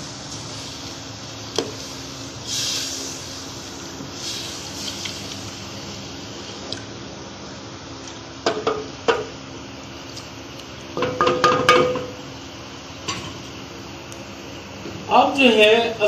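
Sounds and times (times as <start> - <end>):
spoon knocking against pot: 11.0 - 12.1.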